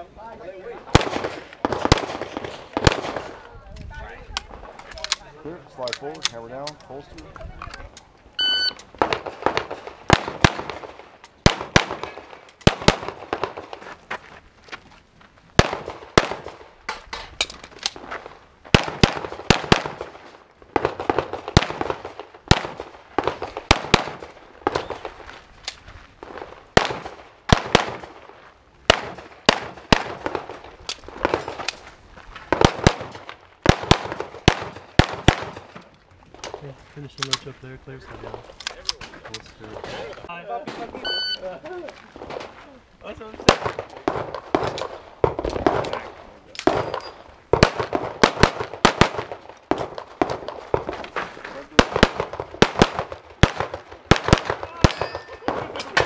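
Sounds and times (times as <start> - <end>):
shot timer beep: 8.4 - 8.8, 41.0 - 41.4
rapid pistol fire: 47.6 - 50.8, 51.8 - 55.8.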